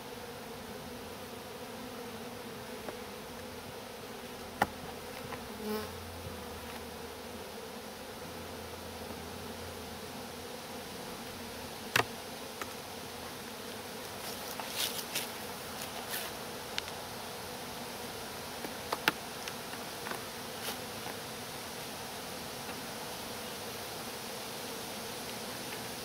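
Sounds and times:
honeybees buzzing: 0.0 - 26.0
hive tool clicks and knocks: 18.6 - 20.2.

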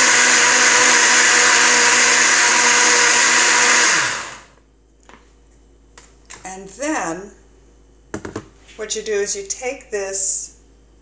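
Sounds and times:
blender running: 0.0 - 4.6.

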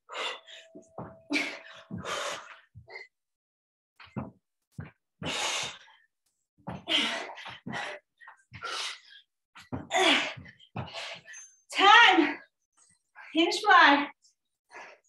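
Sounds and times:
woman breathing hard: 0.0 - 3.1, 5.2 - 6.0, 6.7 - 11.4.

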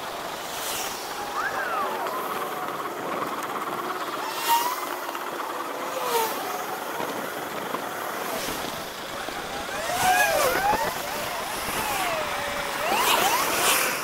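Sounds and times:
traffic: 0.0 - 14.0
warbling pitch sweeps: 4.0 - 5.2, 9.4 - 14.0
wind rush: 7.0 - 13.0.

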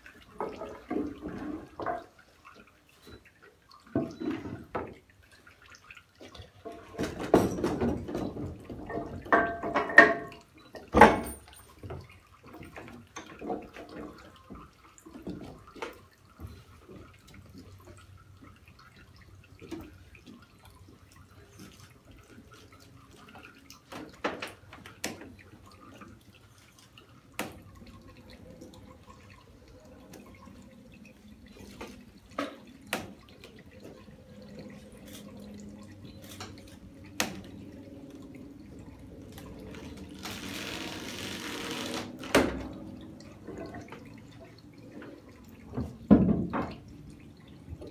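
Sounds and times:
oil and water dripping into basin: 0.0 - 40.2, 42.4 - 47.9.

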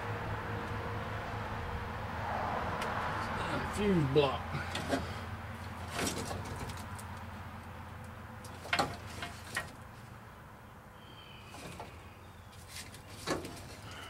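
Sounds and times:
clicks and rattles of wiring: 5.6 - 7.3, 8.0 - 9.9.

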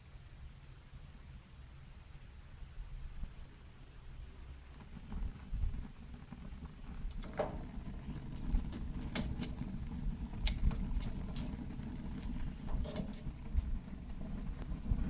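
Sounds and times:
low rumble of fire: 0.0 - 15.0
sharp crackles and pops: 3.3 - 15.0.

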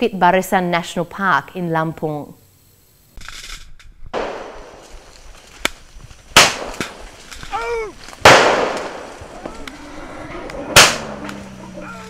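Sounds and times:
firecrackers cracking: 4.1 - 12.0
loud echoing bangs: 4.2 - 5.1, 6.3 - 7.2, 8.2 - 9.6, 10.6 - 11.5.

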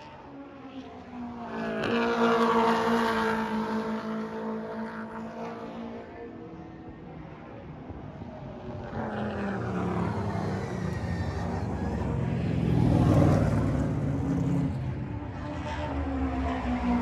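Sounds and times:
race car engines passing: 0.0 - 17.0.

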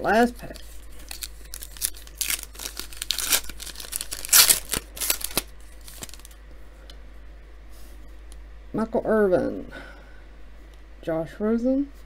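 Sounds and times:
foil wrapper tearing and crinkling: 1.0 - 6.3.

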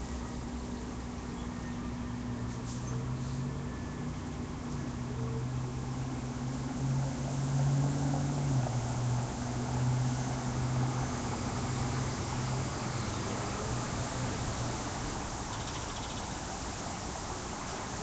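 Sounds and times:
traffic engine hum: 0.0 - 18.0
tyres hissing on wet pavement: 4.3 - 18.0.

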